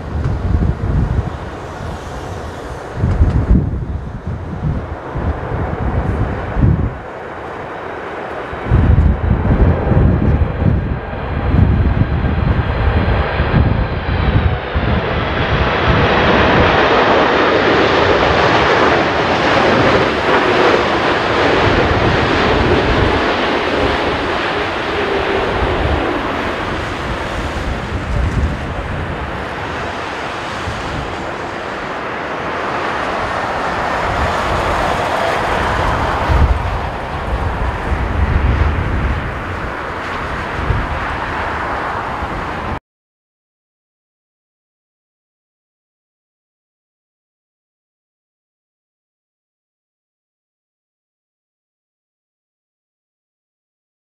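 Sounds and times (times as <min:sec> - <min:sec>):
jet engine noise: 0:00.0 - 0:42.8
wind buffeting microphone: 0:00.0 - 0:42.8.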